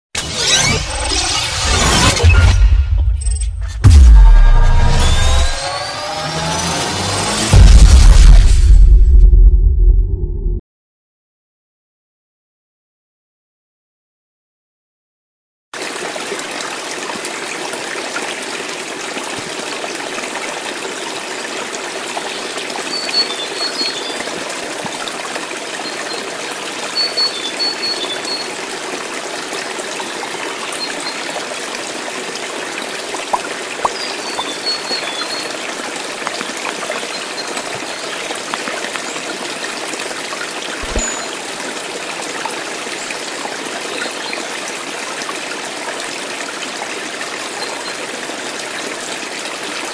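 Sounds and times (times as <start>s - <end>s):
water trickling: 15.8s - 49.9s.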